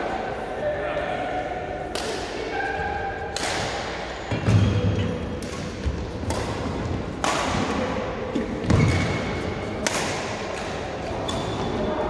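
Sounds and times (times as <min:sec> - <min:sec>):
racket hitting shuttlecock: 0:03.3 - 0:08.0, 0:08.6 - 0:11.0.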